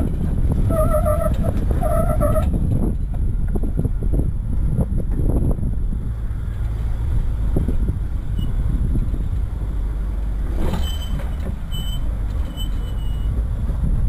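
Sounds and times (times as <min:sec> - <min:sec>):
vehicle engine at low revs: 0:00.0 - 0:14.0
short high squeaks: 0:10.6 - 0:13.4.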